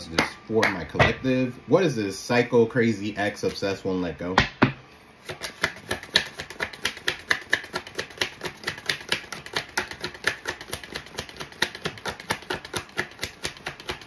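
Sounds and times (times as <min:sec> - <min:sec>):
cards shuffling and clicking: 0:05.2 - 0:14.0.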